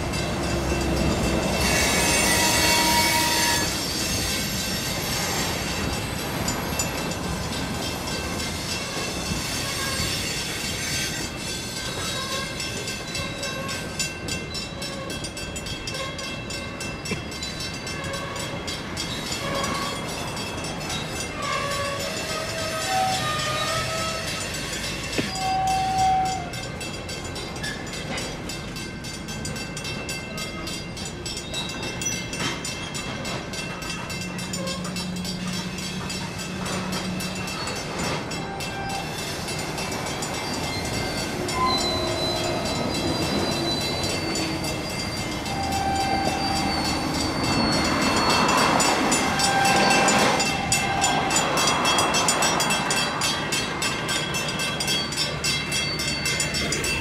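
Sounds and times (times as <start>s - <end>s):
train wheels rumbling on rails: 0.0s - 57.0s
high-pitched wheel squeals: 1.3s - 6.0s, 8.2s - 16.8s, 21.0s - 26.7s, 34.5s - 57.0s.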